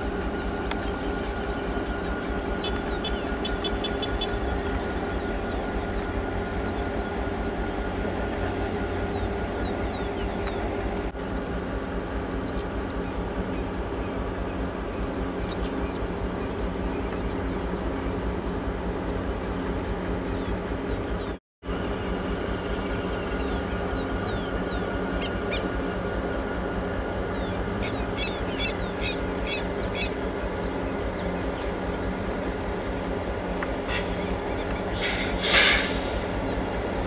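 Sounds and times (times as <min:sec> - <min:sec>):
birds chirping: 0:00.0 - 0:07.3, 0:08.9 - 0:11.1, 0:12.2 - 0:18.1, 0:27.1 - 0:33.0, 0:33.6 - 0:37.0
high insect drone: 0:00.0 - 0:37.0
low steady hum: 0:00.0 - 0:37.0.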